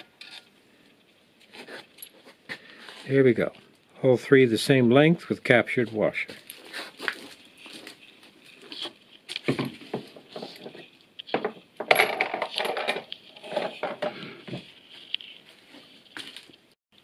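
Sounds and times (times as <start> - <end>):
metal tools clinking on workbench: 11.3 - 14.1.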